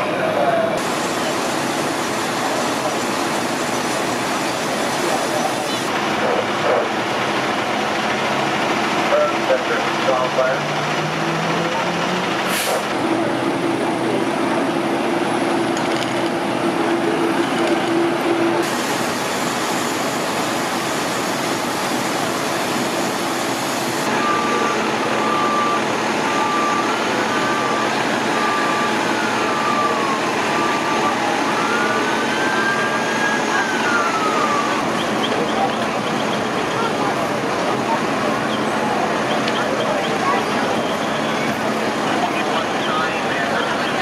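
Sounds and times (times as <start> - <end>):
fire truck engines running: 0.0 - 44.0
reversing truck beeper: 22.1 - 37.0, 38.5 - 44.0
siren rising and falling: 24.0 - 37.0.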